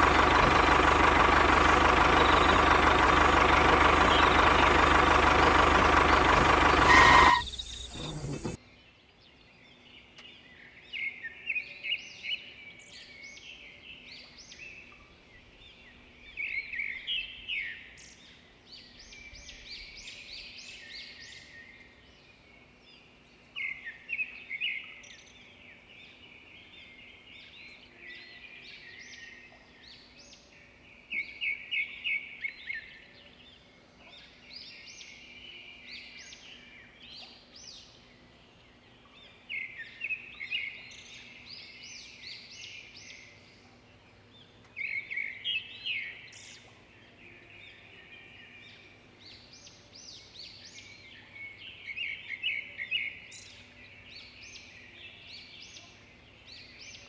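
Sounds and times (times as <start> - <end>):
small birds chirping: 0.0 - 20.2.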